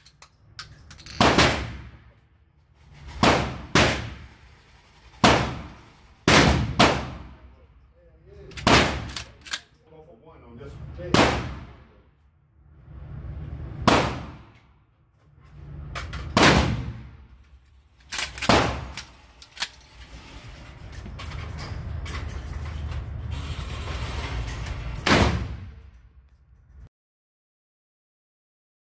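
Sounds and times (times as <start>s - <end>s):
shotgun shots with echo: 5.2s - 7.4s, 11.1s - 11.8s, 13.8s - 14.5s, 16.4s - 17.2s, 25.0s - 25.8s.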